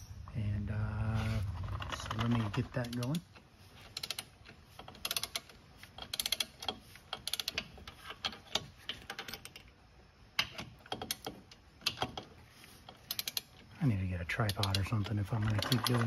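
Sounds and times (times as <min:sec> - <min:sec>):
ratcheting torque wrench clicking: 0:03.8 - 0:09.7, 0:10.4 - 0:13.6.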